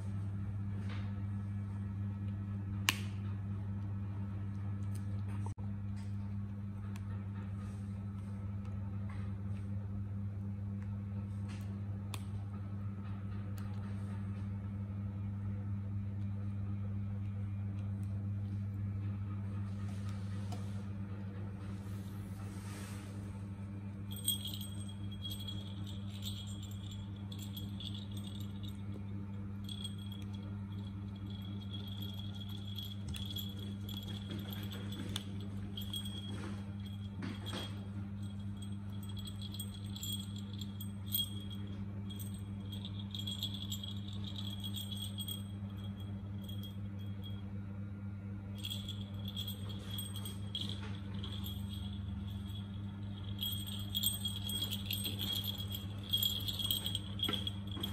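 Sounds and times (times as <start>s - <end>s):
steady low hum: 0.0s - 57.9s
ball toy bell jingling: 24.1s - 28.9s, 29.6s - 47.4s, 48.6s - 57.9s.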